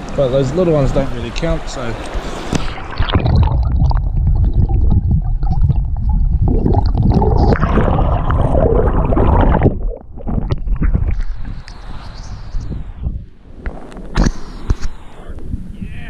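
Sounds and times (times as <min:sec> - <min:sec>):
muffled underwater river rushing: 0:00.0 - 0:15.8
stones knocking underwater: 0:02.5 - 0:11.5.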